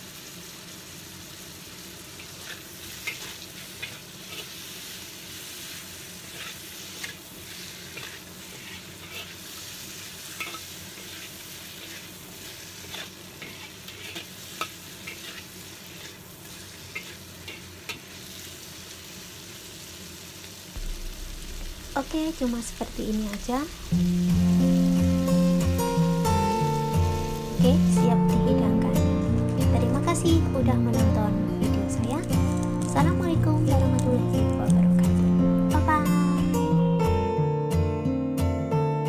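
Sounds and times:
hot oil sizzling in a wok: 0.0 - 37.2
utensil scraping and knocking wok: 2.1 - 18.2, 20.8 - 27.9.

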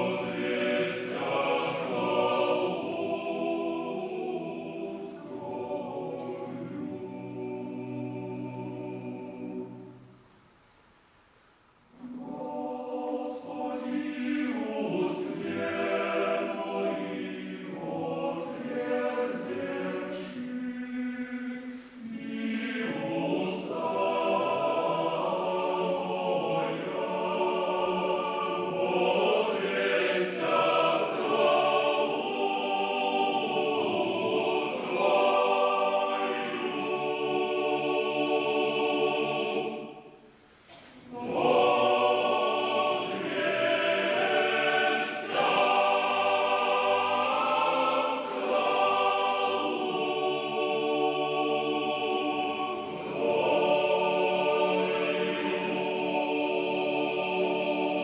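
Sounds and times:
male choir singing a cappella: 0.0 - 10.1, 12.0 - 58.0.

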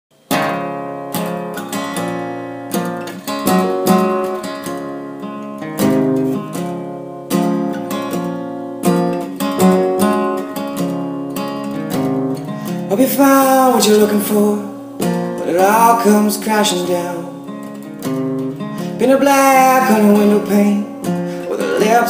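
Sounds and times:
acoustic guitar strumming: 0.1 - 22.0.

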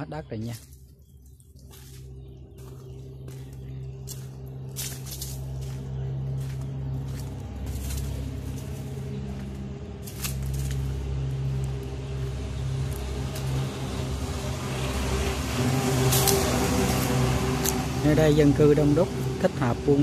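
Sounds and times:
motor humming: 1.2 - 20.0.

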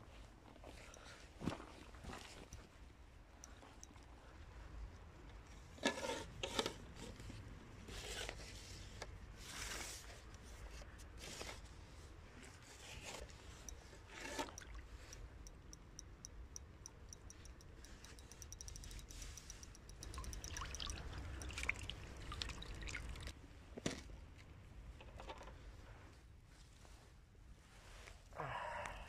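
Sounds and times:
faint evenly spaced ticks: 3.3 - 5.6, 13.1 - 23.3
handling noise rubbing and scraping: 5.7 - 11.8.

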